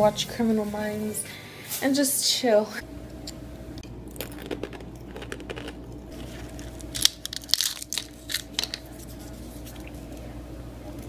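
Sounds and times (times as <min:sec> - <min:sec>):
fortune cookie cracking: 0:04.1 - 0:10.2.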